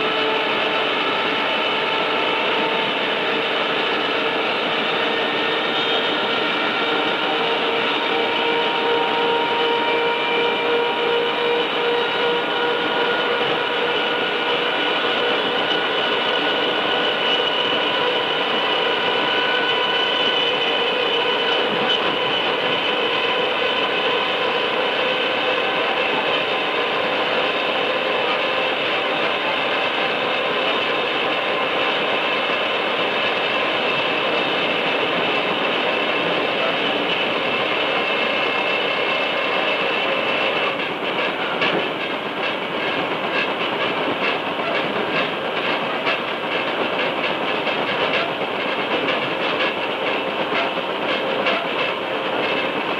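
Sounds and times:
train motor gears whining: 0:00.0 - 0:52.9
train wheels rumbling: 0:00.0 - 0:52.9.

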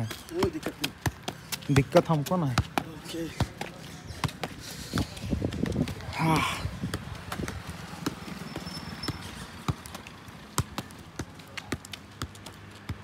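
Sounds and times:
football taps on foot: 0:00.3 - 0:06.0, 0:06.8 - 0:08.2.

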